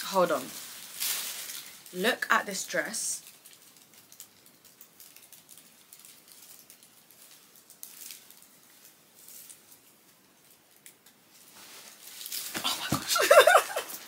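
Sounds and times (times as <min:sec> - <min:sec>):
fabric rustling: 0:00.1 - 0:02.0, 0:11.3 - 0:14.0.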